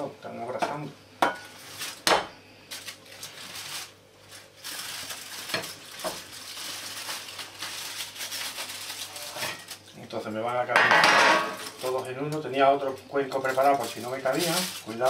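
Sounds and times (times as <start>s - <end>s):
foil rustling: 1.3s - 15.0s.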